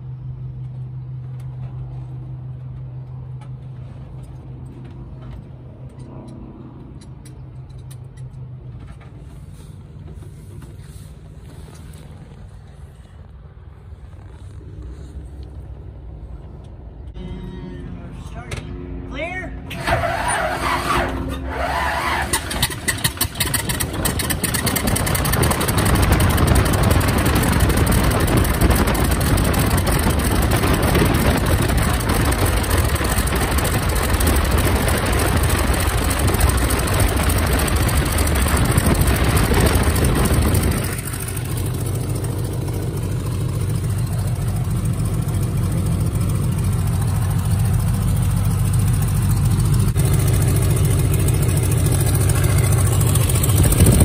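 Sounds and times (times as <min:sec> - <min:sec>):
biplane piston engine running: 0:19.7 - 0:54.0.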